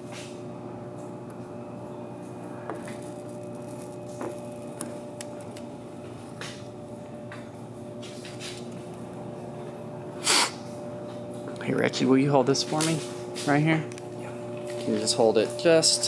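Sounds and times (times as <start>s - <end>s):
steady hum: 0.0s - 16.0s
plastic film crinkling: 2.8s - 5.7s.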